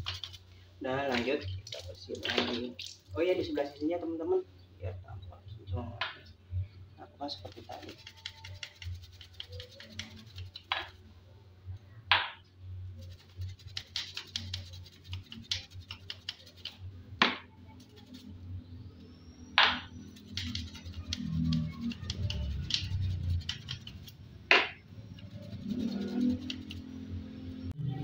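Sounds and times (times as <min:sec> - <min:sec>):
brush scrubbing metal chain: 0:07.4 - 0:11.0, 0:13.0 - 0:16.8, 0:17.7 - 0:18.4, 0:20.0 - 0:24.2, 0:25.2 - 0:27.1.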